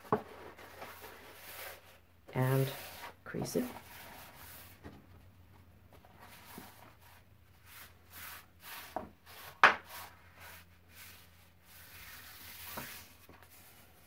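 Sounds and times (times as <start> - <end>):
paper rustling and swishing: 6.0 - 14.0.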